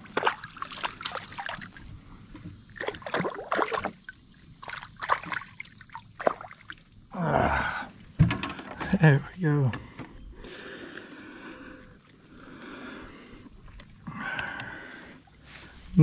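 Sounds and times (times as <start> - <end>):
water splashing: 0.0 - 2.0, 2.6 - 7.0
knocks against boat: 8.2 - 9.0.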